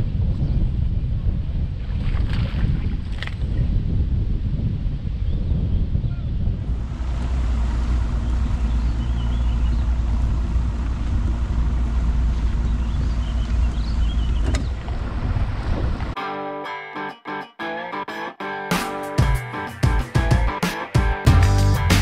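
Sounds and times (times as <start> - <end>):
boat motor running: 6.7 - 16.1.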